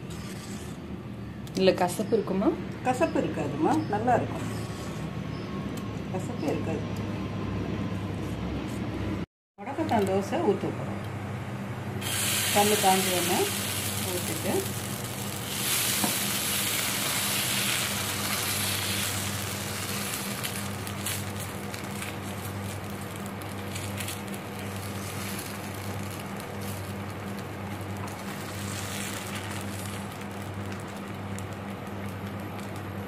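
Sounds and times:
cooktop low hum: 0.0 - 33.0
batter sizzling on a hot pan: 12.0 - 33.0.

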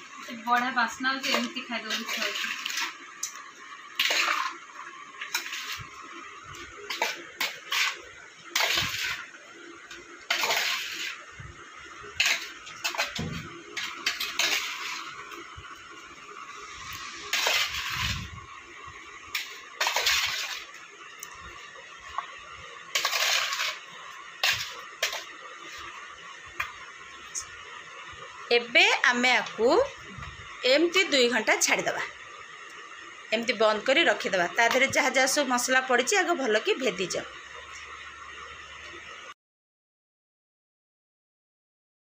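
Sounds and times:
spoon scraping a metal bowl: 10.3 - 11.2, 22.9 - 23.8.

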